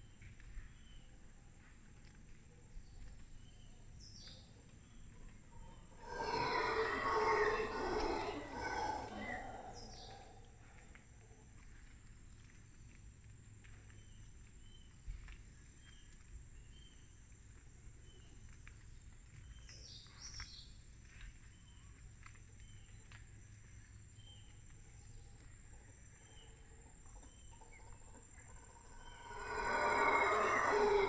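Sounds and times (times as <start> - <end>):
small birds chirping: 2.7 - 11.0, 13.6 - 31.0
loud bird call: 28.6 - 31.0.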